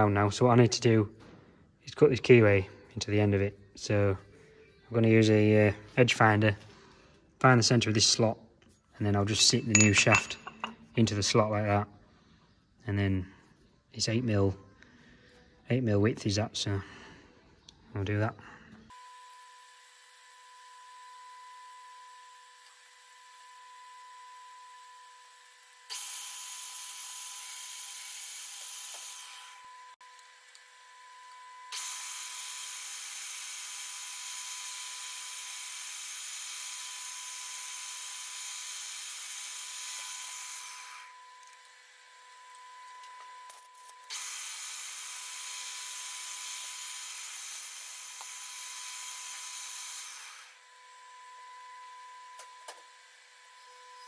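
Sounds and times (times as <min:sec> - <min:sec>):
milling machine cutting steel: 0:44.1 - 0:51.6.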